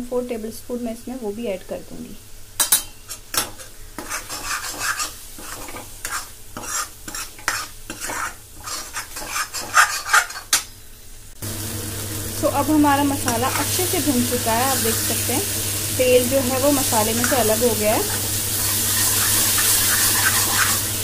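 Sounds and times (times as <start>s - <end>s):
spice paste sizzling in oil: 3.0s - 21.0s
ladle scraping metal pan: 4.0s - 10.6s, 17.2s - 20.9s.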